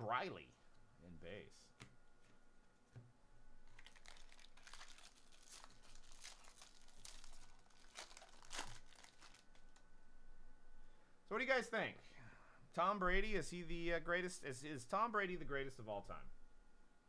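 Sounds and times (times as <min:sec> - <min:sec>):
foil wrapper crinkling and tearing: 0:03.6 - 0:09.8.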